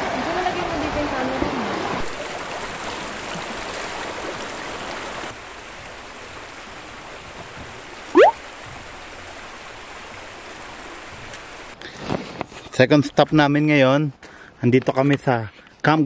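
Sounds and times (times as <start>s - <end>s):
whistle-like upward glide: 8.2s - 8.4s.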